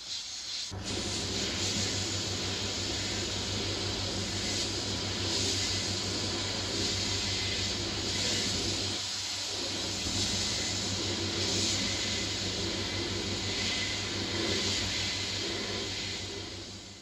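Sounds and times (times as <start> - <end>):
sandblasting gun hissing: 0.0 - 17.0.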